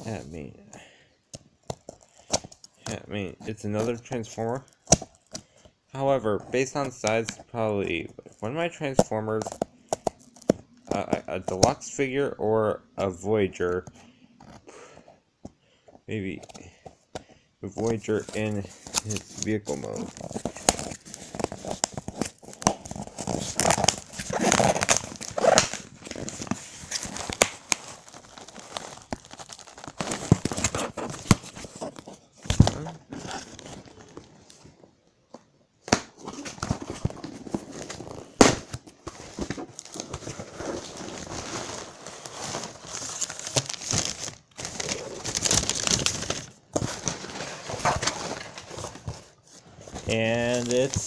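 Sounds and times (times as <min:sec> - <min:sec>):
cardboard packaging rustling: 0:17.7 - 0:35.0, 0:35.9 - 0:51.0.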